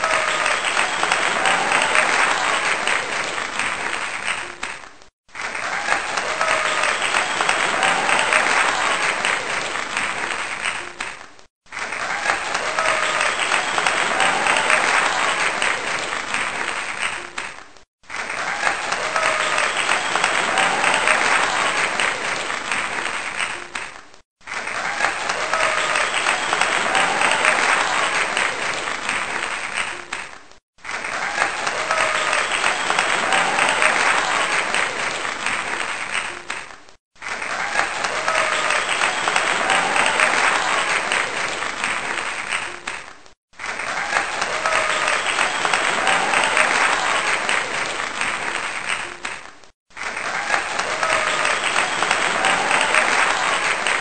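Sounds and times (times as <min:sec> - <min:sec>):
audience applause: 0:00.0 - 0:54.0.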